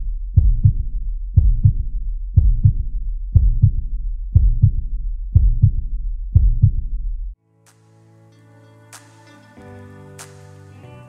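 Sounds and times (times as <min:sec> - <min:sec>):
heartbeat double thump: 0:00.0 - 0:07.3
steady low rumble: 0:00.0 - 0:07.4.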